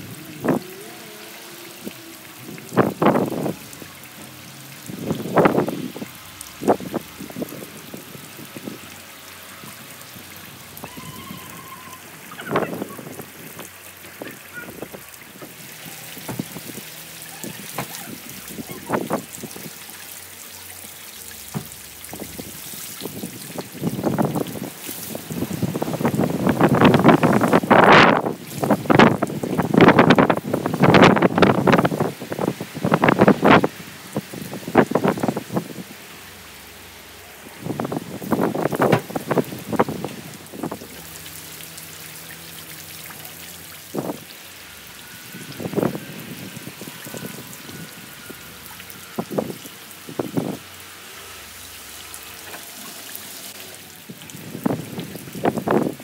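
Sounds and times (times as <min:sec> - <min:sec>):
rain hissing: 0:00.0 - 0:56.0
raindrops striking: 0:00.0 - 0:56.0.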